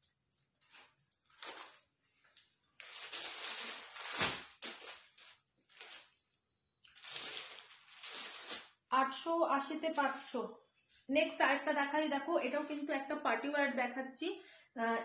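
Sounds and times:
garments rustling and swishing: 0.5 - 6.0.

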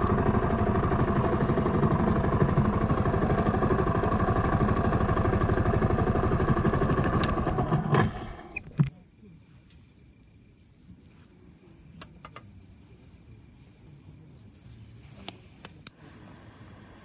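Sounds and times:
engine idling: 0.0 - 8.5.

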